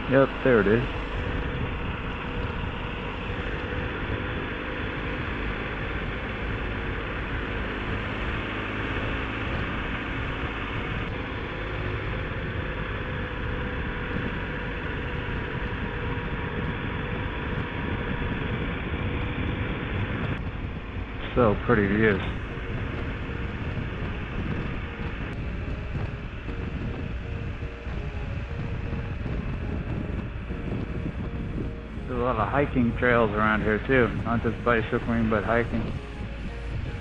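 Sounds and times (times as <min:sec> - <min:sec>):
motorcycle engine running: 0:00.0 - 0:37.0
wind noise: 0:00.0 - 0:37.0.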